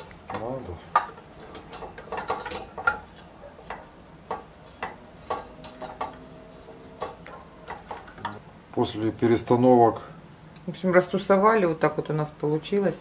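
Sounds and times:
glass jars clinking against metal pot: 0.0s - 8.4s.

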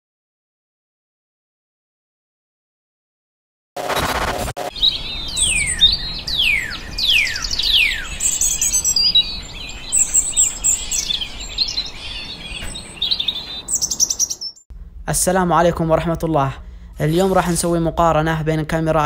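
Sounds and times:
birds chirping and twittering: 4.1s - 14.7s.

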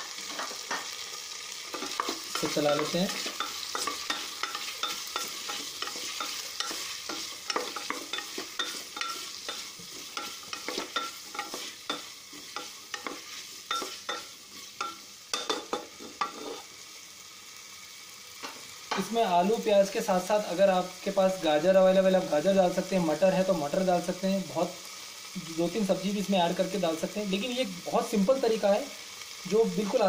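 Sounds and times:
potatoes and onions sizzling in oil: 0.0s - 30.0s
wooden spatula scraping a pot: 16.0s - 16.7s.

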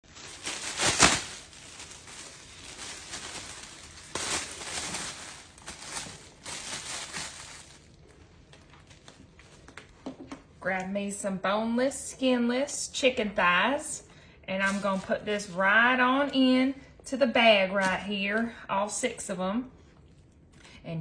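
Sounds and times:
plastic bag crinkling: 0.0s - 9.3s.

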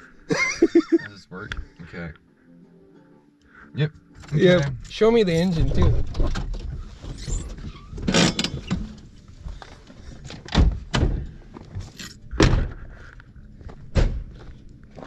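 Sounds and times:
sharp thunks: 10.5s - 11.4s, 12.3s - 12.8s, 13.9s - 14.3s.

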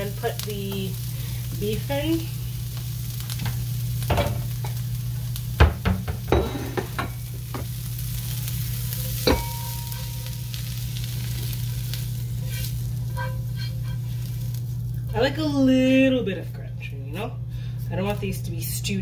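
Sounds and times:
steady low hum: 0.0s - 19.0s
vegetables sizzling in a frying pan: 0.0s - 19.0s
spatula scraping a pan: 12.3s - 14.6s.

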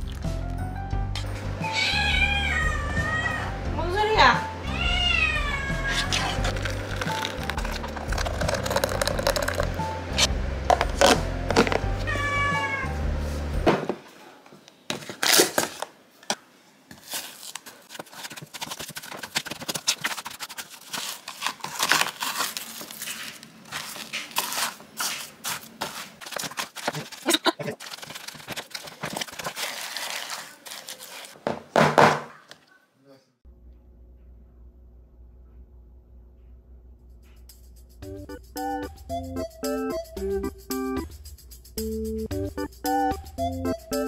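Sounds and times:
background music: 0.0s - 2.1s, 2.9s - 13.7s, 37.6s - 44.0s
packaging rustling and crinkling: 5.9s - 9.8s, 14.9s - 15.9s, 16.9s - 31.4s
utensils clattering: 5.9s - 11.8s.

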